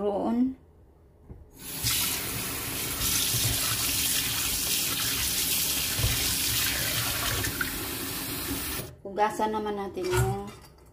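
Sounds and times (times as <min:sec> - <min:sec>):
kitchen tap turned on: 0:01.6 - 0:08.9
water running into steel sink: 0:01.6 - 0:08.9.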